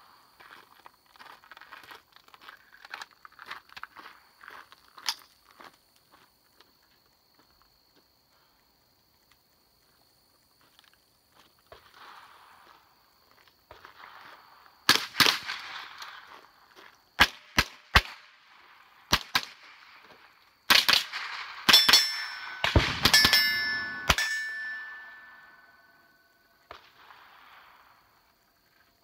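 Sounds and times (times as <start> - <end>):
rifle shots: 14.9 - 16.2, 20.7 - 25.6
metallic ringing of steel targets: 21.4 - 26.6.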